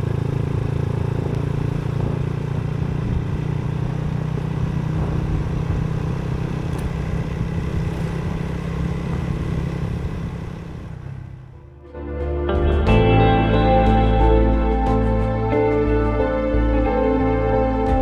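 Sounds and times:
motorcycle engine cruising: 0.0 - 18.0.

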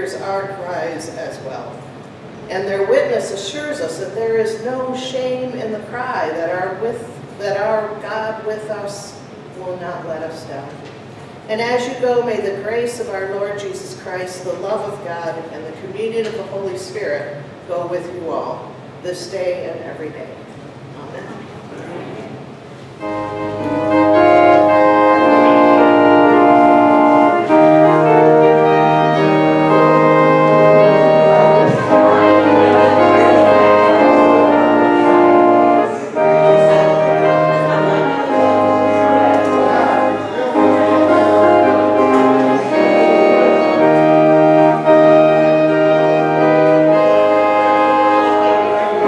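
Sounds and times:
church organ chords: 23.0 - 49.0.

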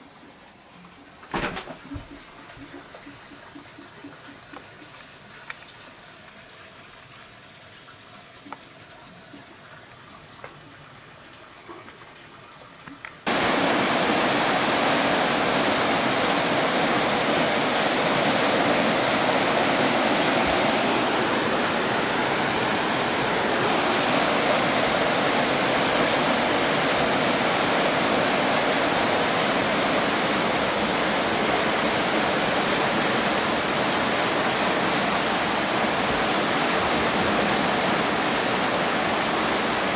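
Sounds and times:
floodwater rushing: 13.2 - 39.9.

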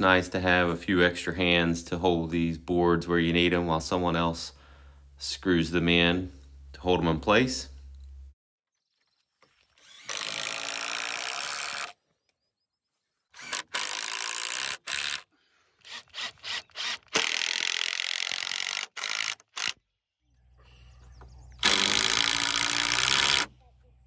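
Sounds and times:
cordless drill driving screws into wood: 9.8 - 12.0, 13.3 - 19.8, 21.6 - 23.5.

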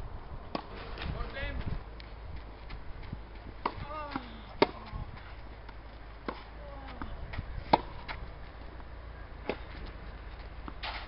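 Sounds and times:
tennis balls struck by rackets: 0.5 - 1.1, 3.4 - 8.8, 9.4 - 11.0.

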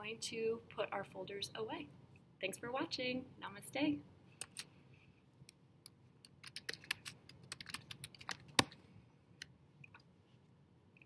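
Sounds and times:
laptop keyboard tapping: 6.4 - 8.8.

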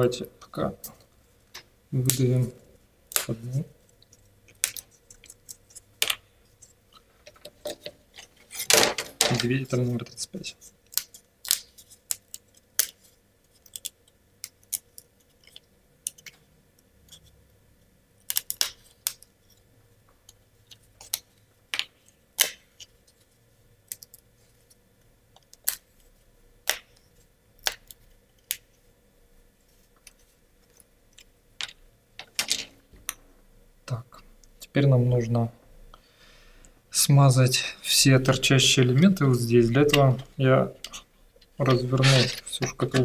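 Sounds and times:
wooden clicks and snaps: 26.6 - 27.0
wood scrape: 41.6 - 42.6.

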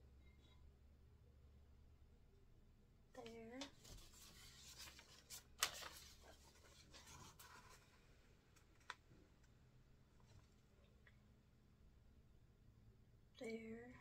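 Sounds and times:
cardboard rustling and scraping: 3.7 - 8.1.

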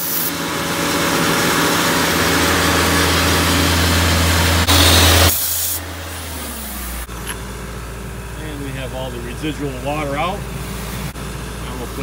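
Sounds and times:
compressed air rushing hiss: 0.0 - 0.4, 4.7 - 5.9
engine running: 0.0 - 12.0.

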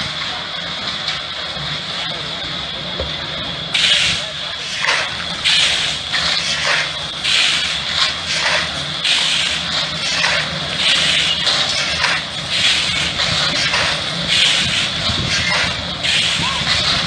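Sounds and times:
shovels scraping gravel: 3.8 - 17.0.

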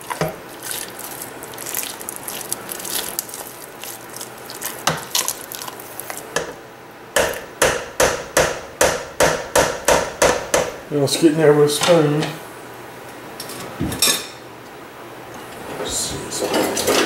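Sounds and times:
potatoes squishing: 0.0 - 6.4.

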